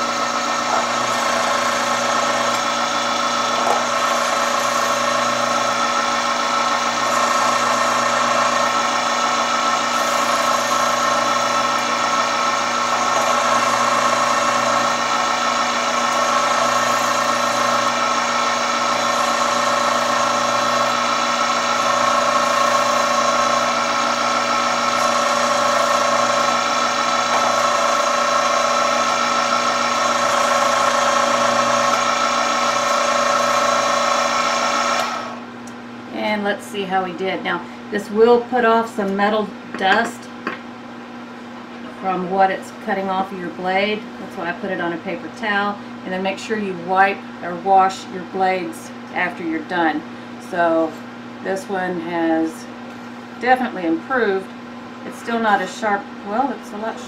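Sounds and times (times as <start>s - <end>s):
electric knife sharpener humming: 0.0s - 35.8s.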